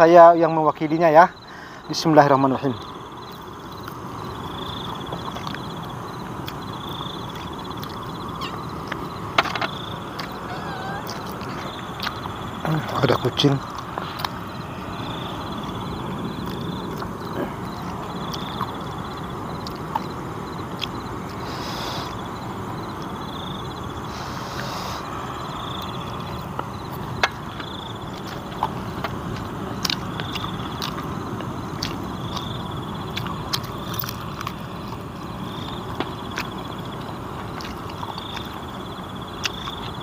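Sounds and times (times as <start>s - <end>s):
outdoor background hum: 0.0s - 40.0s
clicks and taps of eating: 35.9s - 38.6s.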